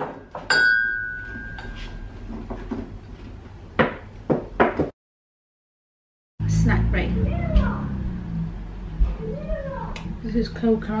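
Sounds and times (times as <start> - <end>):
ceramic mug knocking and ringing: 0.0 - 1.8.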